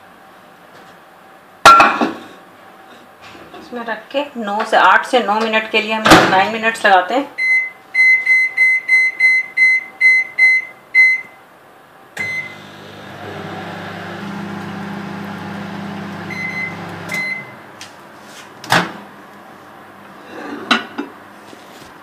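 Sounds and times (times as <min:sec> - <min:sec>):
microwave keypad beeps: 0:07.4 - 0:11.3, 0:12.2 - 0:12.6, 0:16.2 - 0:17.6
microwave humming: 0:12.2 - 0:20.2.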